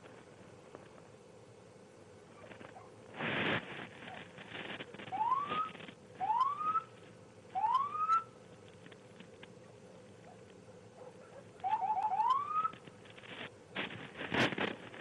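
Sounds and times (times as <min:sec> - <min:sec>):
rising siren whoops: 0:07.6 - 0:08.2, 0:11.6 - 0:12.8.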